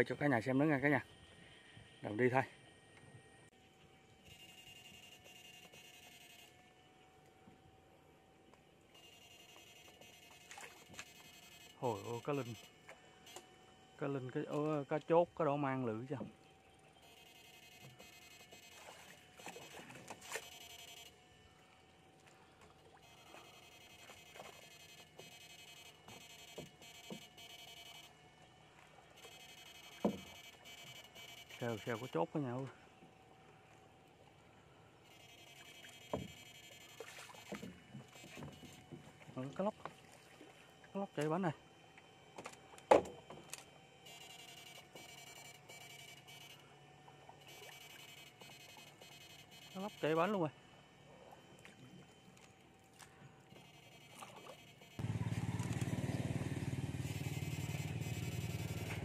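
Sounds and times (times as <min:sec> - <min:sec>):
high electronic whine: 0:09.0 - 0:16.1, 0:53.5 - 0:59.0
water splashes: 0:36.9 - 0:38.4, 0:39.0 - 0:40.8
high electric buzz: 0:53.6 - 0:59.0.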